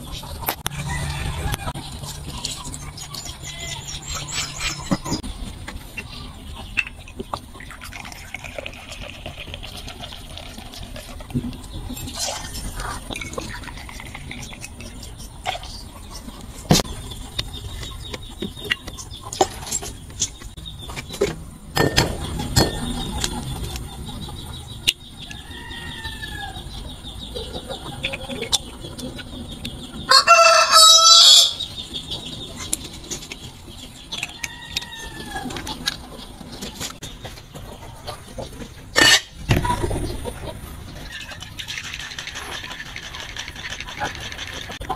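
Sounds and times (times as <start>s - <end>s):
rooster crowing: 0.7s - 1.8s, 25.3s - 26.6s, 30.1s - 31.6s.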